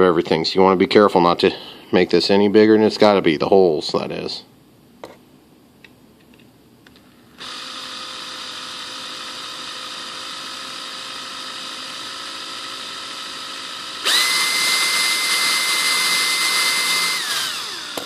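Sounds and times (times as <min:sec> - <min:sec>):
power drill whining: 0:07.4 - 0:18.0.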